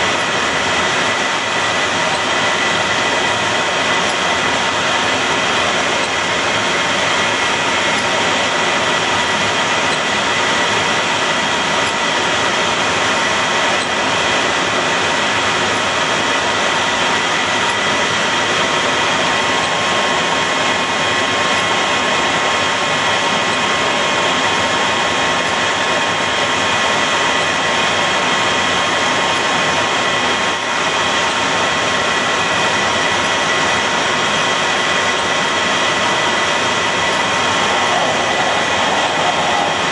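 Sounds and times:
jet engines whining: 0:00.0 - 0:39.9
rush of air: 0:36.6 - 0:39.9.

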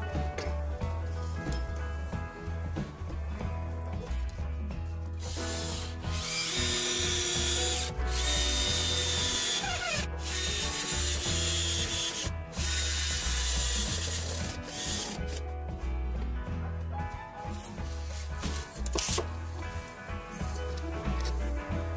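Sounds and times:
background music: 0:00.0 - 0:21.9
cordless drill drilling steel: 0:05.2 - 0:15.2.

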